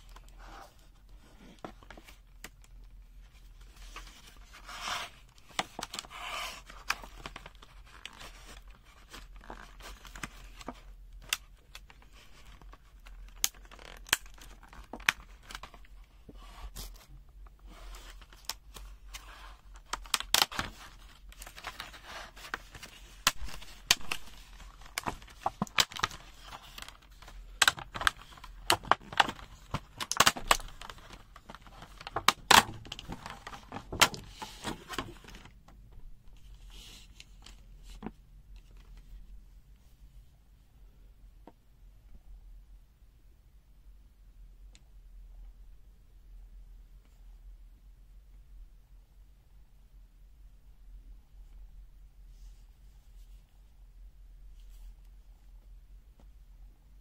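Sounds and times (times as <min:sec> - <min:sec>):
plastic packaging crackling: 0:03.6 - 0:16.0, 0:17.9 - 0:35.6.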